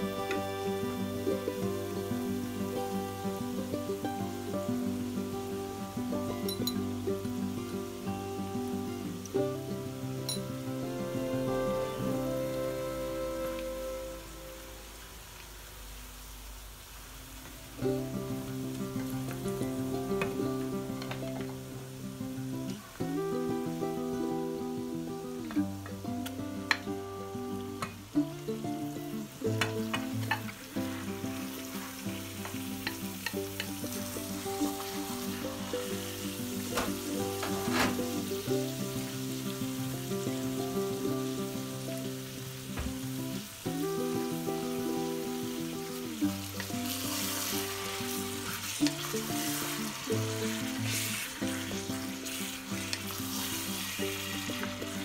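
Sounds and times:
background music with held chords: 0.0 - 14.9
acoustic guitar music: 0.0 - 15.5, 17.3 - 55.0
meat sizzling in a frying pan: 0.0 - 55.0.

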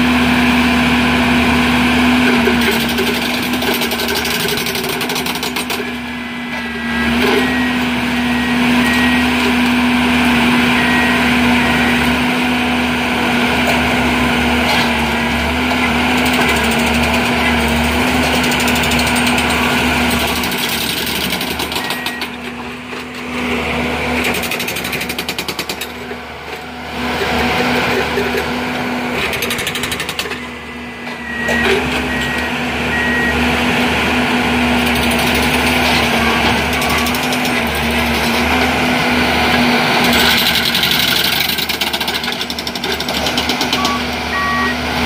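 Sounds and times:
diesel machine rattling: 1.6 - 6.1, 12.2 - 45.0
short high beeps: 21.6 - 22.4, 31.2 - 33.4, 43.6 - 44.9.

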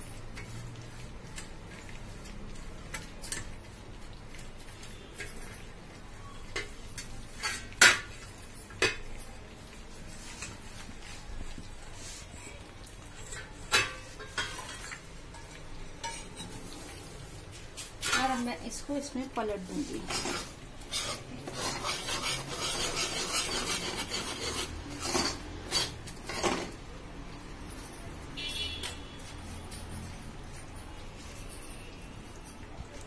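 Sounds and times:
metal plate clinking: 13.2 - 16.6.

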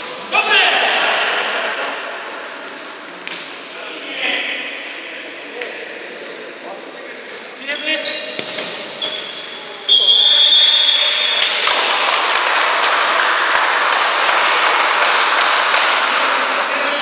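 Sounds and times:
referee's whistle blast: 9.9 - 11.4
rhythmic clapping: 11.3 - 16.3.

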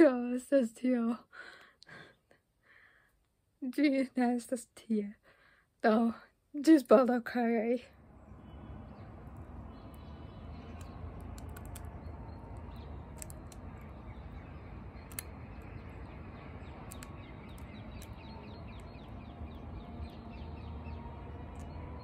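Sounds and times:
low outdoor rumble: 7.6 - 22.0
crow beak clicking and tapping: 9.3 - 20.2, 21.5 - 21.8
faint high ticks: 16.8 - 19.0.

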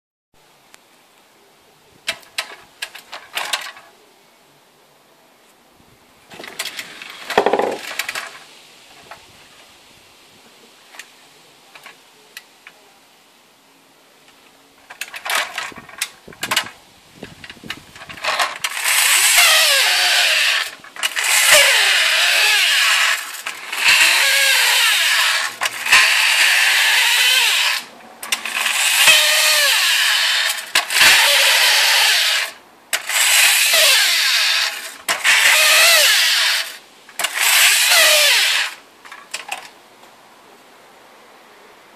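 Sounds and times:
flint sparking mechanism grinding: 6.3 - 8.4, 18.0 - 39.6
toy flywheel motor whirring: 6.4 - 8.4, 14.9 - 16.8, 17.4 - 38.8.

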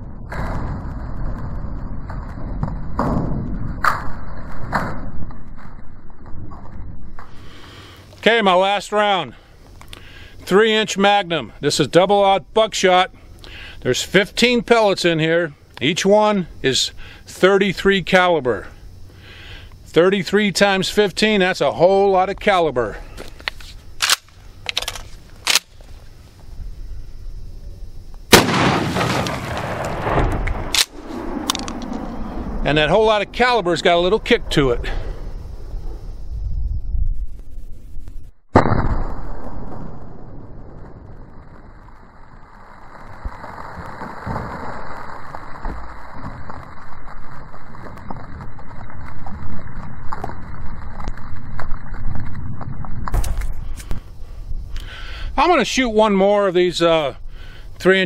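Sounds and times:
crackling rustling noise: 23.0 - 26.6, 29.0 - 32.5, 40.6 - 54.8
shotgun shot with rolling echo: 28.3 - 31.8, 38.5 - 40.9.

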